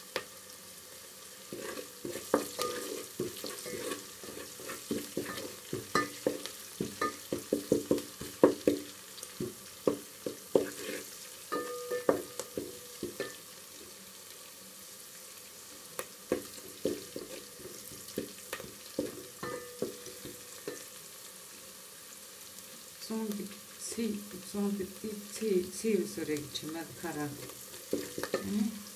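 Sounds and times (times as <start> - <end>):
onions sizzling in oil: 0.0 - 28.9
spoon knocking and scraping pot: 1.5 - 13.4, 16.3 - 20.9, 27.4 - 28.6.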